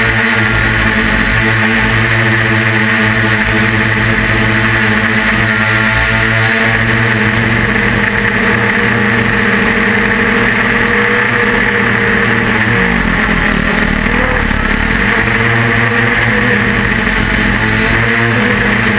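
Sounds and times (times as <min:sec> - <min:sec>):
drone propellers buzzing: 0:00.0 - 0:18.9.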